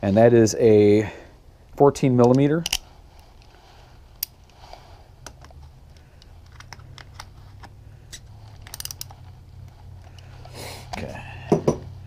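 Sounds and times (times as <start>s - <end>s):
low steady hum: 0.0s - 12.0s
wrench clicking on plastic: 8.6s - 9.1s.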